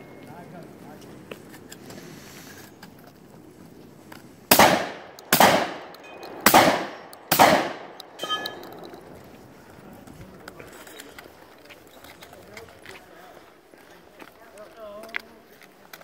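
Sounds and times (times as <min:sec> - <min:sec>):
rifle gunshots echoing: 0:04.5 - 0:09.1
brief metallic ring: 0:08.2 - 0:08.8.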